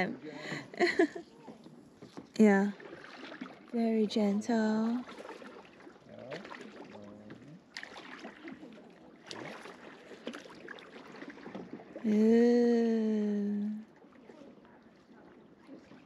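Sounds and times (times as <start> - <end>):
kayak paddle strokes: 0.0 - 16.0
water splashing and dripping: 0.8 - 16.0
paddle knocking on hull: 1.4 - 3.7, 4.4 - 8.6, 9.2 - 12.0.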